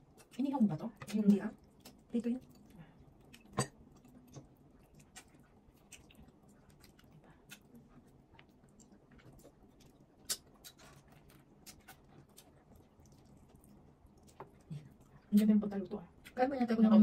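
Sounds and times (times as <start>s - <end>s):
chewing: 0.0s - 15.5s.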